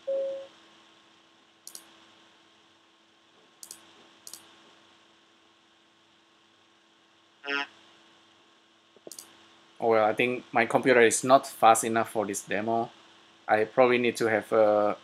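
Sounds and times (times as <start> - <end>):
faint high clicks: 3.6 - 4.5, 9.0 - 9.4.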